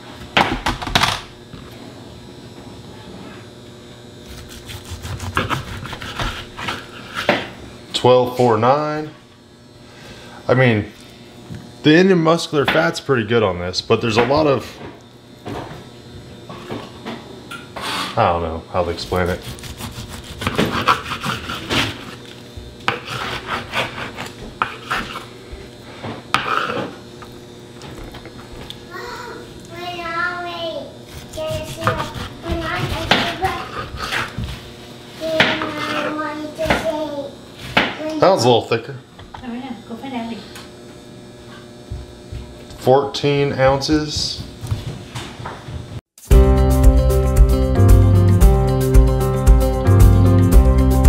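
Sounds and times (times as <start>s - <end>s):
knife cutting meat on board: 4.3s - 7.5s, 19.0s - 25.3s, 31.1s - 34.4s.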